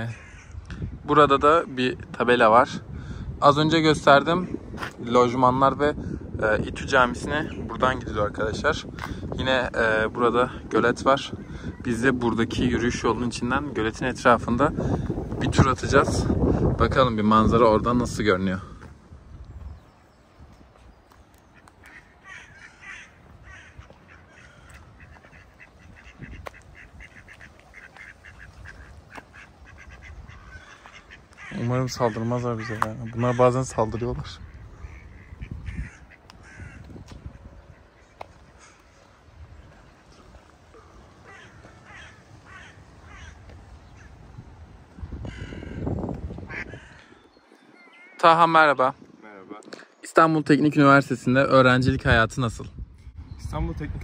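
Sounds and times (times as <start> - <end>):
geese honking: 0.0 - 0.6, 21.4 - 48.4
crows cawing: 0.0 - 0.9, 21.2 - 48.2.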